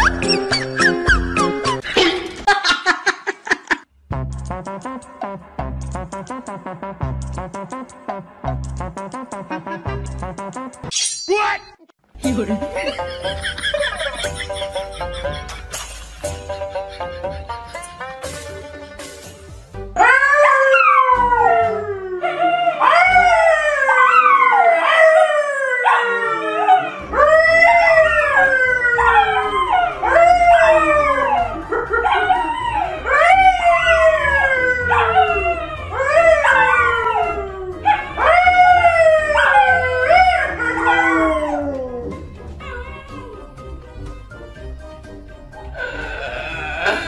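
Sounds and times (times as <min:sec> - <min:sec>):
dogs howling: 0:20.0 - 0:43.6
man howling: 0:45.8 - 0:47.0.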